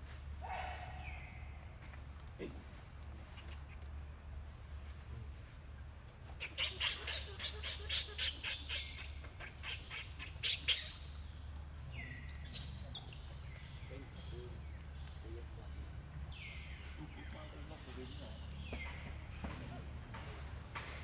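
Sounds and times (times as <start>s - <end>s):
harsh squawking bird calls: 6.3s - 11.3s, 11.9s - 14.6s.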